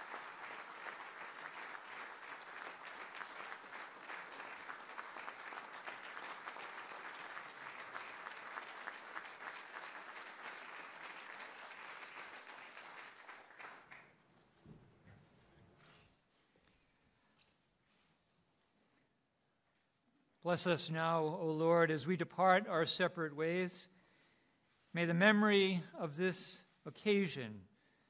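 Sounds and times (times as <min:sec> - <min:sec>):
audience applauding: 0:00.0 - 0:14.1.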